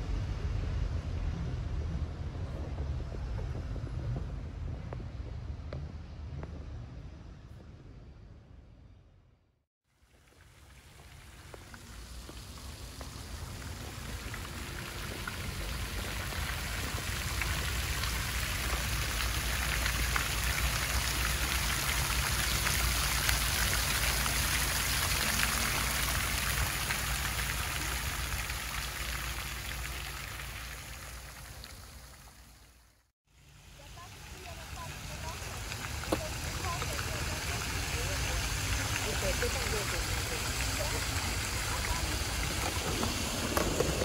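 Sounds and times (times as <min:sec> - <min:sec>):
fountain water splashing: 0:09.9 - 0:44.0.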